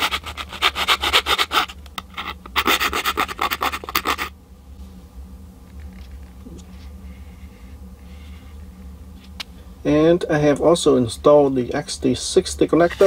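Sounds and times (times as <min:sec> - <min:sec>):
hand file rasping: 0:00.0 - 0:04.3.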